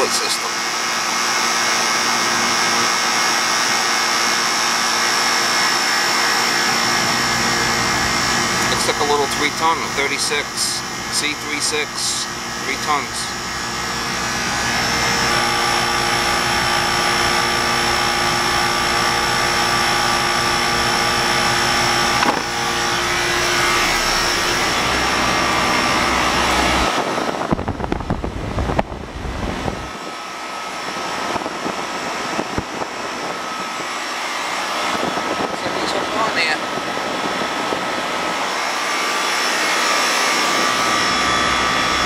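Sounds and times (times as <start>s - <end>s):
air conditioner unit humming: 0.0s - 42.0s
steady tones: 5.9s - 27.0s.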